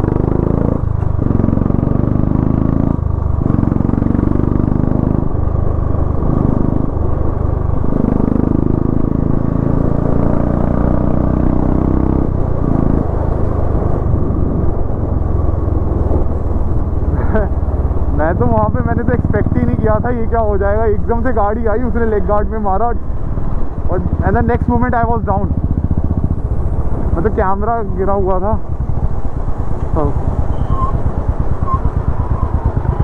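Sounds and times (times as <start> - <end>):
motorcycle engine running: 0.0 - 33.0
person speaking: 17.1 - 23.0, 23.9 - 25.6, 27.0 - 28.7, 29.9 - 30.2.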